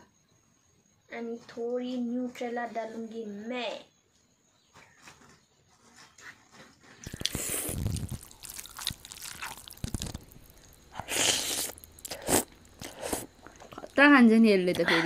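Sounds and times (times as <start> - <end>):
slurping and chewing noodles: 7.0 - 14.0.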